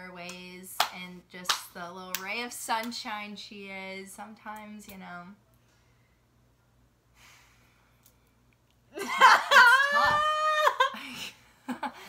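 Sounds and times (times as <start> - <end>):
woman laughing loudly: 9.0 - 12.0.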